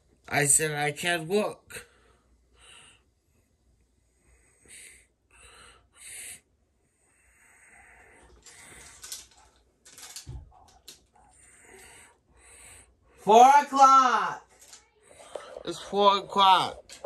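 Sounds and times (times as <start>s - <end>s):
breathy puffs: 4.1s - 13.3s
rustling and handling noise: 8.2s - 11.4s, 14.4s - 17.0s.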